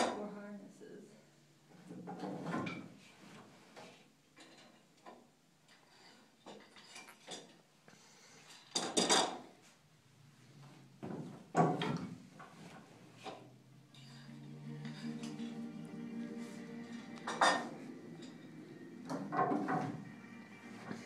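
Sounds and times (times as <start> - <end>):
loom wooden knocks and clatter: 1.8 - 3.0, 11.0 - 14.0, 19.0 - 20.2.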